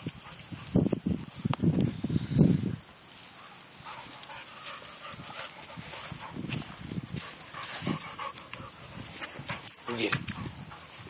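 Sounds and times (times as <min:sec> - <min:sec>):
dog panting: 0:03.3 - 0:06.5, 0:07.2 - 0:11.0.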